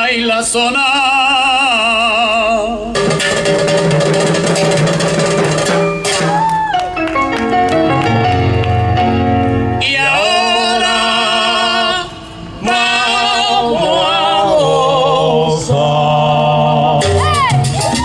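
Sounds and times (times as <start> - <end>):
salsa music: 2.5 - 18.0
person singing with vibrato: 9.8 - 18.0.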